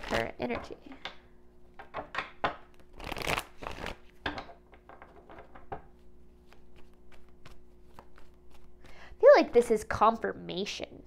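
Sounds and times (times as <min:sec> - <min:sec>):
cards being shuffled: 0:00.0 - 0:00.3, 0:02.6 - 0:04.2, 0:04.9 - 0:09.0
cards tapping and sliding: 0:01.8 - 0:09.0.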